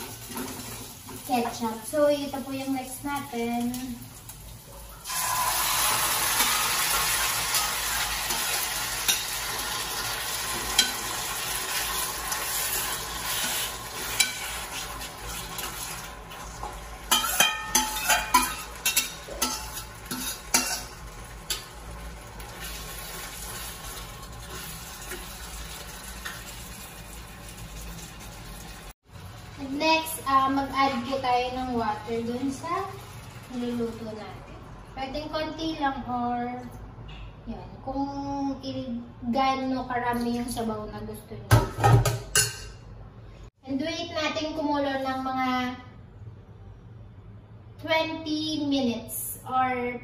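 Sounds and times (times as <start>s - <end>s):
chicken sizzling in frying pan: 2.5s - 34.1s
spatula clinking against metal bowl: 17.1s - 21.7s.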